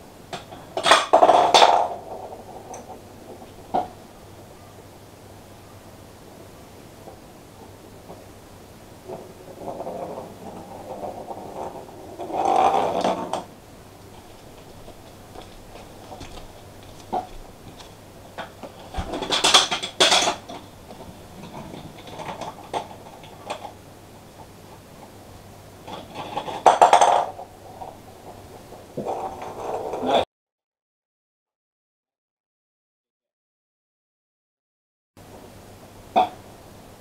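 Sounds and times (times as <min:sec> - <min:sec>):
plastic balls rattling along track: 0:14.2 - 0:25.2.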